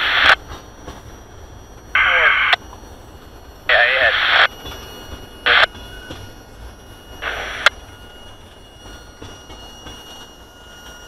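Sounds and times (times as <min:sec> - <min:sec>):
radio static bursts: 0:00.0 - 0:00.4, 0:02.0 - 0:02.6, 0:03.7 - 0:04.5, 0:05.5 - 0:05.7, 0:07.2 - 0:07.7.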